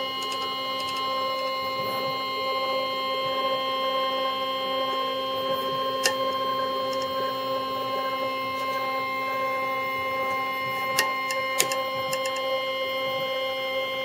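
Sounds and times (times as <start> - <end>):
motor whine: 0.0 - 14.0.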